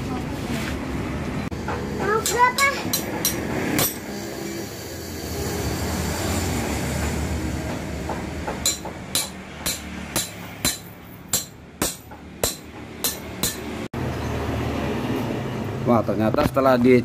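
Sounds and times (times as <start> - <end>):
hammer blows on metal spanner: 7.0 - 13.8.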